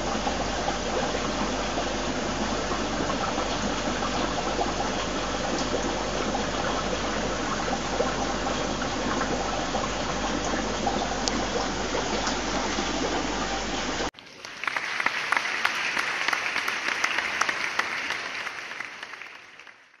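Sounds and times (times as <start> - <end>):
sponge filter bubbling: 0.0 - 14.7
aquarium equipment hum: 0.0 - 20.0.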